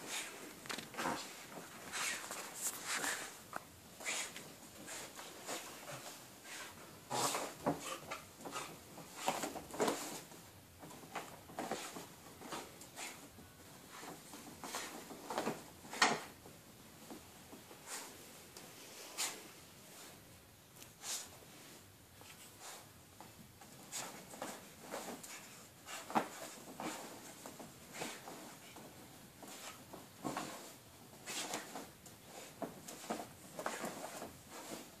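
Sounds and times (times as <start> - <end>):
claws scratching on blankets: 0.0 - 10.3, 29.4 - 35.0
blankets rustling: 0.0 - 35.0
dog scratching fabric: 29.4 - 34.9.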